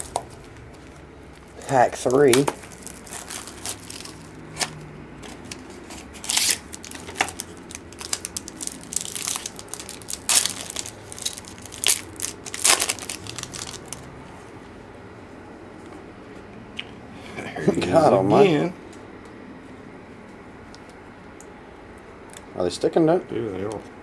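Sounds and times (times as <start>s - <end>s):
wrapper crinkling and crackling: 0.0s - 14.1s.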